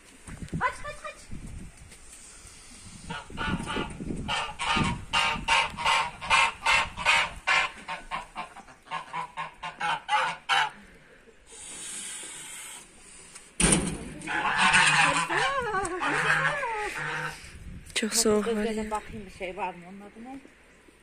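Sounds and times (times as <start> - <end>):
geese honking: 3.1 - 10.9, 14.3 - 17.5.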